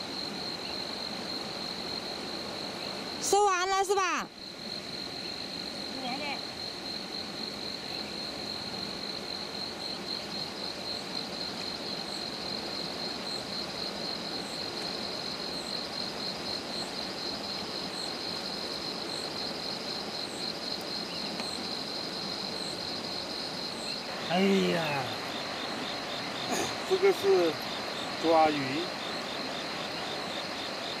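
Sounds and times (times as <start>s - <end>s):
insects trilling: 0.0s - 31.0s
river rushing: 21.7s - 31.0s.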